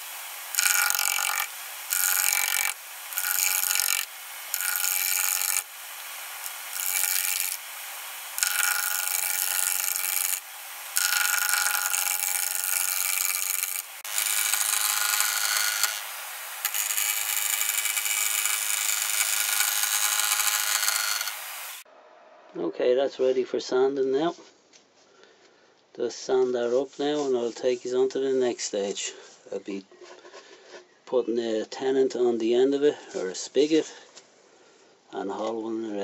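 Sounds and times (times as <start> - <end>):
wood lathe turning: 0.0 - 21.8
gouge rasping on turning wood: 0.5 - 5.7, 8.4 - 10.4, 11.0 - 21.4.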